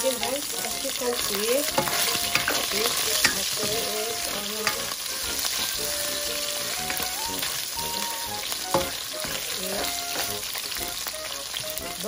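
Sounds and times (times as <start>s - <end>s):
meat sizzling in a pan: 0.0s - 12.0s
spoon scraping and tapping a pan: 0.2s - 6.0s, 8.6s - 10.9s.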